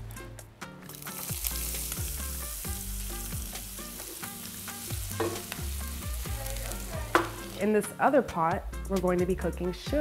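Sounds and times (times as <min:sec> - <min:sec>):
beat-driven music: 0:00.2 - 0:09.8
onions sizzling in a hot pan: 0:00.9 - 0:08.0.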